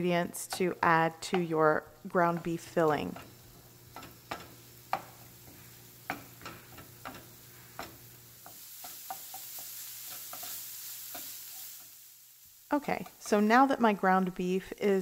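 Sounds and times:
meat sizzling: 0.0 - 15.0
spoon knocking against pan: 0.5 - 1.6, 3.9 - 5.2, 6.0 - 10.5.

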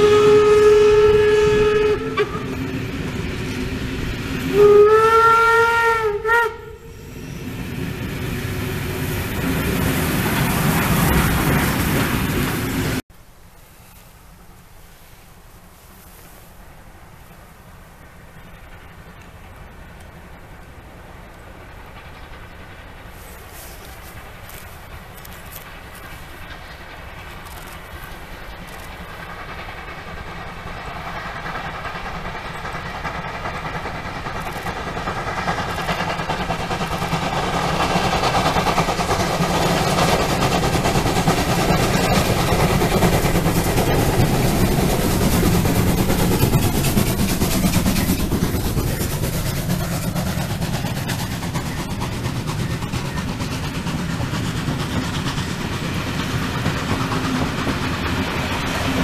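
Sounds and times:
steam locomotives passing: 0.0 - 59.0
train wheels clacking on rail joints: 18.2 - 59.0.

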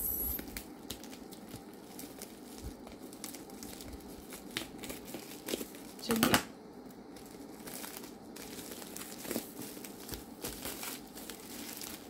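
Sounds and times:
plastic wrapping crinkling: 0.0 - 12.0
scissors cutting plastic: 0.1 - 6.4.

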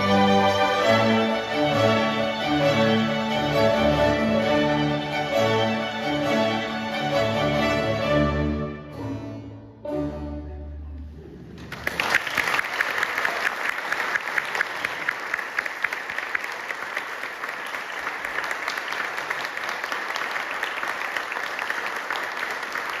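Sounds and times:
audience applause: 11.5 - 23.0.

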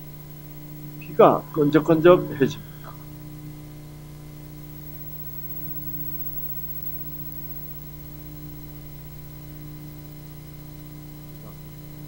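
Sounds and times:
steady hiss: 0.0 - 3.3
electrical hum: 0.0 - 12.0.

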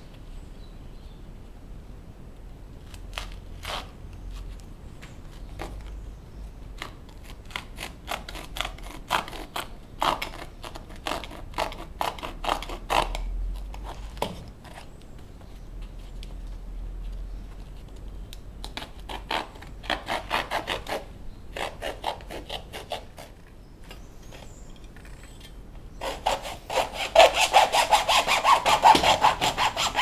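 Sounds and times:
knife cutting shoe material: 26.0 - 30.0.

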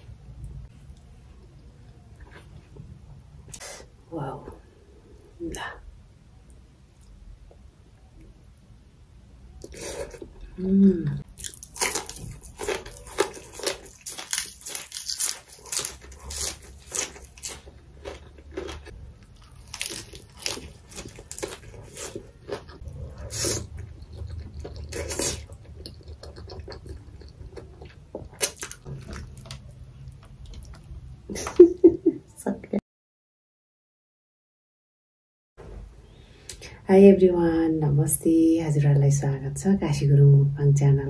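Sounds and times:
chewing and crunching: 11.3 - 30.9.

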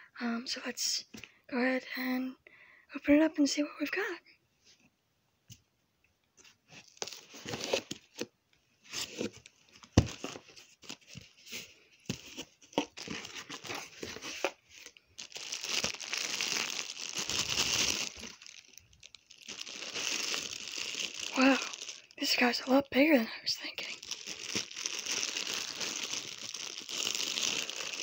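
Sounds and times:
plastic bag crinkling: 12.8 - 22.5, 23.7 - 28.0.

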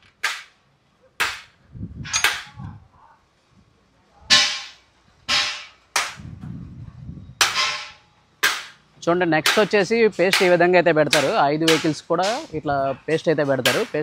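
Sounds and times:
sharp bangs: 1.2 - 2.7, 4.3 - 6.4, 7.4 - 12.6
low rumbling: 6.1 - 8.0.

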